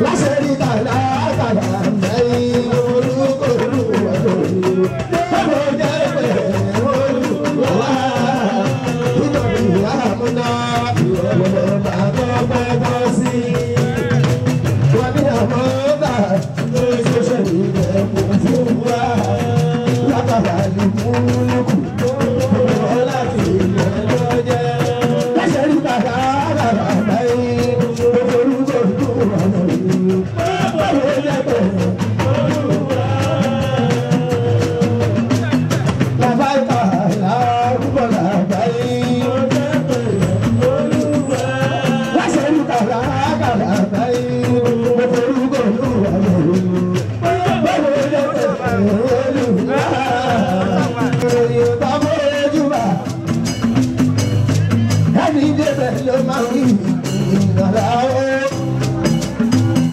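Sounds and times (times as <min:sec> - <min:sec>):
man singing into microphone: 0:00.0 - 0:53.6, 0:54.5 - 0:59.9
band with drums and percussion: 0:00.0 - 0:59.9.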